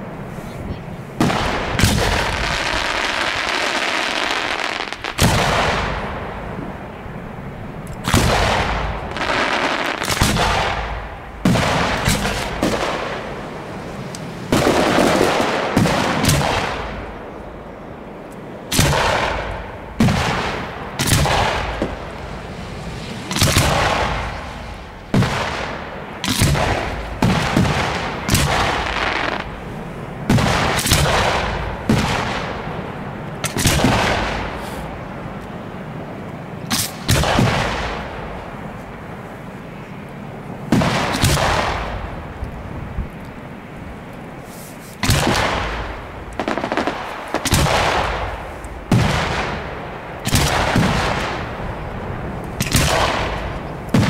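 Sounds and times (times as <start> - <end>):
firework shells bursting: 18.7 - 29.6, 44.6 - 51.6.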